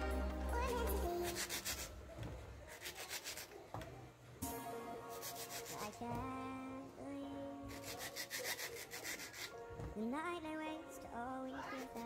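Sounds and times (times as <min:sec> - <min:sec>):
background music with singing: 0:00.0 - 0:01.9, 0:04.4 - 0:08.6, 0:09.4 - 0:12.0
knife scraping mango skin: 0:02.7 - 0:03.6, 0:07.7 - 0:09.5.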